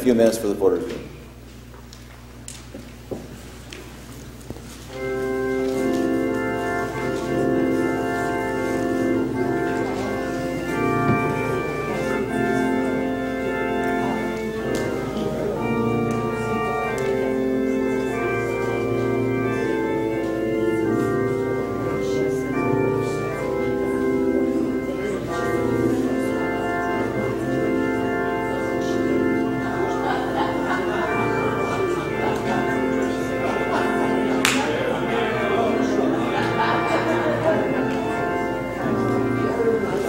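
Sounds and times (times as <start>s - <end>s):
church organ playing chords: 0.0s - 40.0s.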